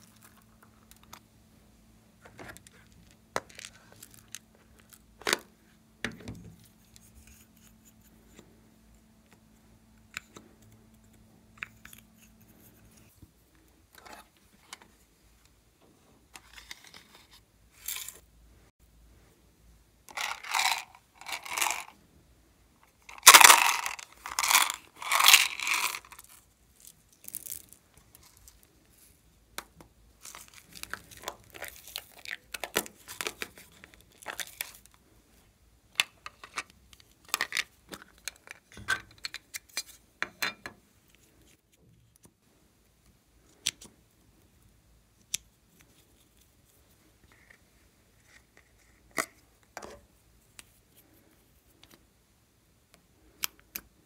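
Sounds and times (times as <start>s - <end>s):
plastic containers crinkling: 20.1s - 21.9s, 23.1s - 28.7s, 30.2s - 35.0s, 36.0s - 39.7s.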